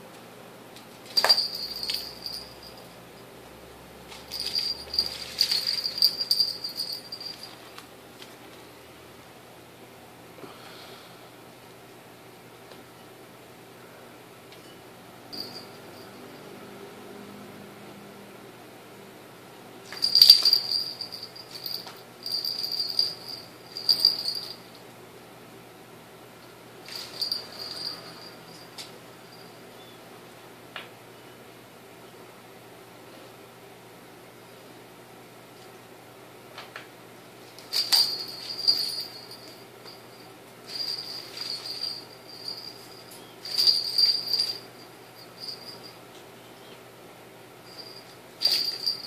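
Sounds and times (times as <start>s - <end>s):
toy ball rattling and jingling: 1.1s - 3.0s, 4.1s - 7.8s, 15.3s - 16.2s, 19.9s - 24.8s, 26.9s - 29.6s, 37.6s - 46.0s, 47.6s - 49.0s.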